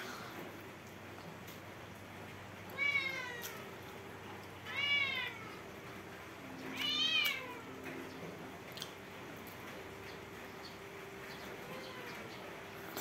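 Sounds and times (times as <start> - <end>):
cat meowing: 2.7 - 3.7, 4.6 - 5.6, 6.7 - 7.7.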